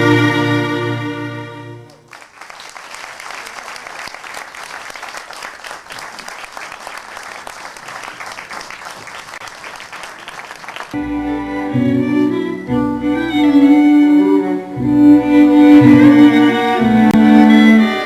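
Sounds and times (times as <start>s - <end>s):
string music: 0.0s - 2.1s, 11.0s - 18.0s
audience applause: 1.8s - 12.5s.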